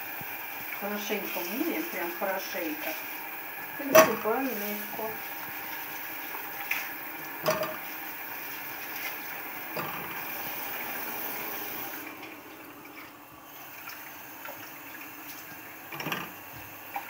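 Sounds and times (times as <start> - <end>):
tap water running into sink: 0.0 - 17.0
fruit knocking in enamel pot: 7.4 - 7.8.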